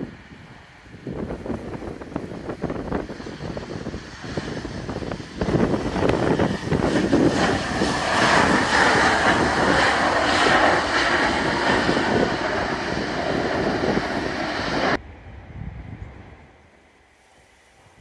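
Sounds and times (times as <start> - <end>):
jet engines running loud: 0.0 - 15.1
wheel spray on wet runway: 1.1 - 15.0.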